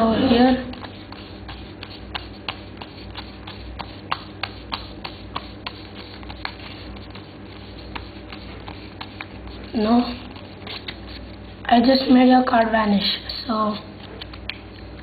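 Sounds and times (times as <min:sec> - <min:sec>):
faint steady hum: 0:00.0 - 0:15.0
playing cards clicking: 0:14.0 - 0:15.0.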